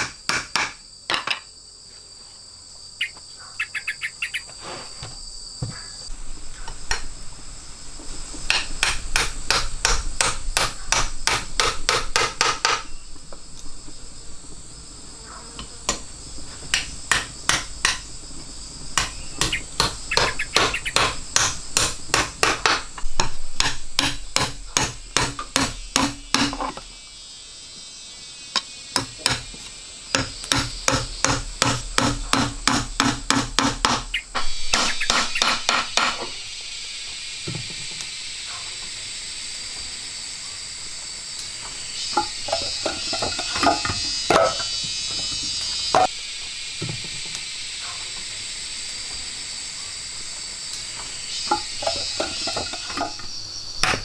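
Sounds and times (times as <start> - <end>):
hand tool striking wood: 0.0 - 1.4, 8.5 - 12.9, 16.6 - 18.1, 19.0 - 26.8, 29.0 - 36.3, 42.2 - 44.8, 53.8 - 54.0
insects droning: 0.0 - 54.0.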